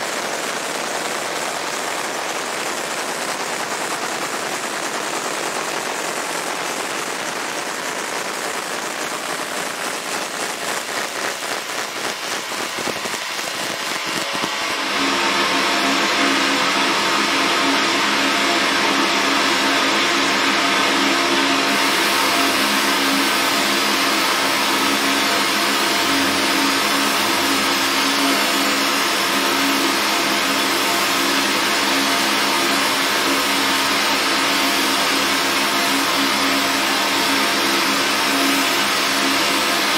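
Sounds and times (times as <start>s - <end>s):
laser engraver crackling buzz: 0.0s - 39.9s
whirring hum: 0.0s - 39.9s
droning held tones: 0.1s - 39.9s.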